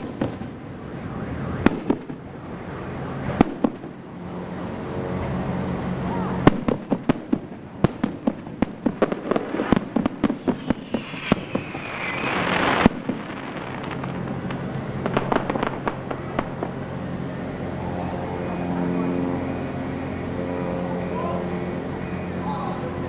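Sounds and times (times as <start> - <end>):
firework bangs and pops: 0.0 - 0.6, 1.6 - 2.3, 3.2 - 4.0, 6.4 - 17.1
firework hiss: 0.0 - 17.8.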